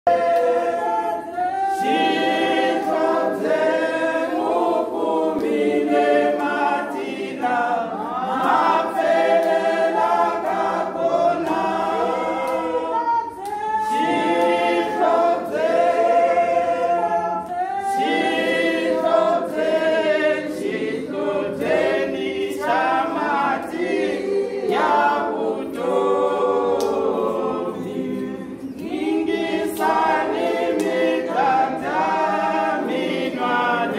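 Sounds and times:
women's choir singing a cappella: 0.1s - 33.9s.

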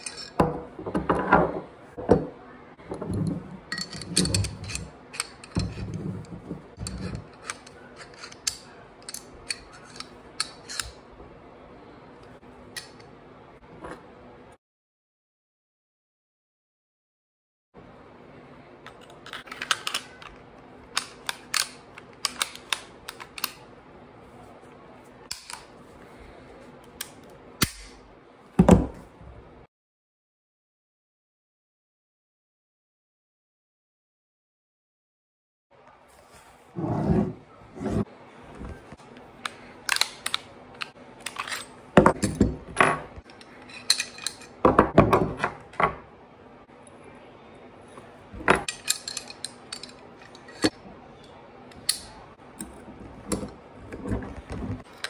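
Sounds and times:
metal parts set on wooden table: 0.0s - 11.0s, 36.4s - 46.1s, 47.9s - 50.8s, 51.7s - 55.0s
metal gun parts clicking: 3.7s - 5.8s, 6.7s - 11.0s, 18.8s - 23.6s, 25.3s - 25.7s, 39.4s - 42.4s, 43.1s - 44.6s, 48.5s - 50.8s.

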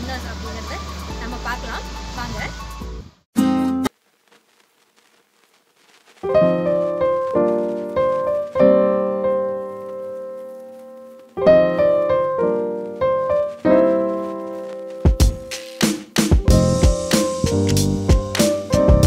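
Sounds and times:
slow piano chords: 6.3s - 15.6s, 16.4s - 19.0s.

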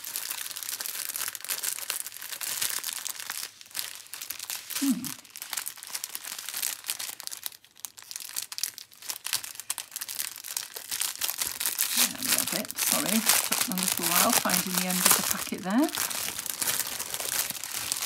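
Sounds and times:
plastic packet crinkling: 0.0s - 18.0s.

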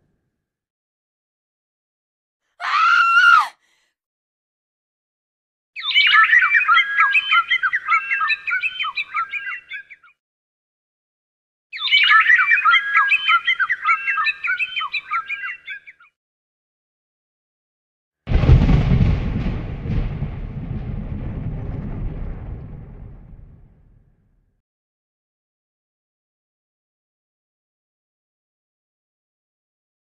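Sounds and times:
birds chirping and squawking: 5.8s - 10.1s, 11.8s - 16.1s.

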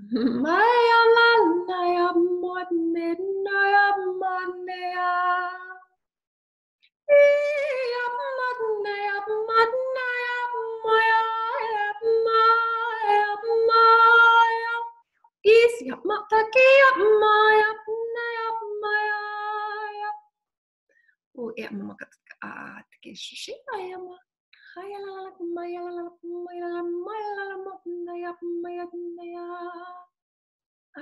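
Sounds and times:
woman singing wordless syllables: 0.0s - 5.8s, 15.5s - 20.2s, 23.5s - 24.2s, 24.8s - 30.1s.

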